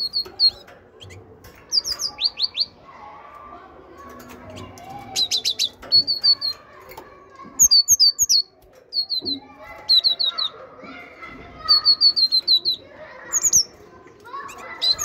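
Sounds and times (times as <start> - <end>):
great tit singing: 0.0 - 2.8, 4.5 - 6.7, 7.6 - 10.6, 11.6 - 15.0.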